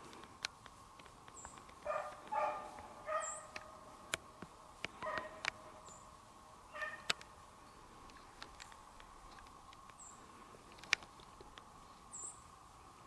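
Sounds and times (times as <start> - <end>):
sharp clicks: 0.1 - 5.6, 6.8 - 7.3, 8.0 - 10.0, 10.7 - 11.7
dogs baying: 1.8 - 3.8, 5.0 - 5.5, 6.7 - 7.1.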